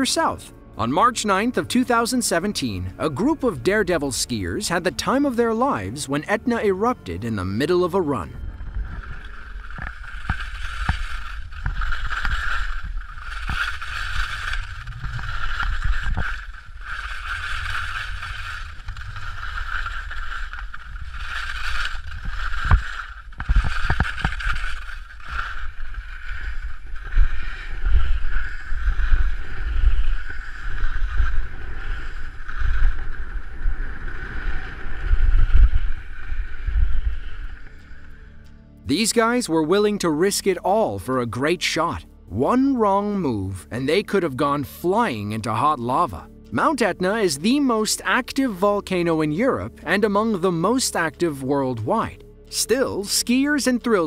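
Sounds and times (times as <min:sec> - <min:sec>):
skis scraping on snow: 0:00.0 - 0:40.9.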